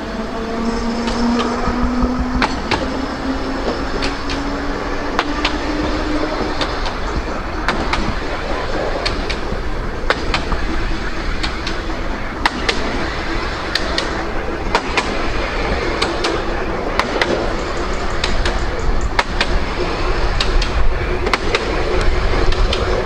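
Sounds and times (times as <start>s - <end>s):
low hum: 0.0s - 23.0s
tram running rumble: 0.0s - 23.0s
tram wheels clicking over joints: 0.0s - 23.0s.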